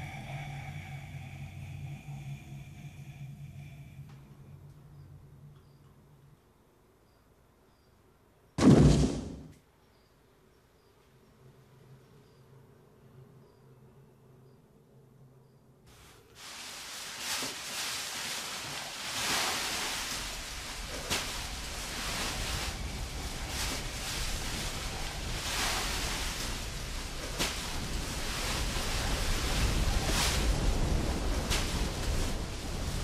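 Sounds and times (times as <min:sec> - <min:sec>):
hissing drone: 0:00.0 - 0:05.8
low rumble: 0:00.0 - 0:05.8, 0:18.7 - 0:33.0.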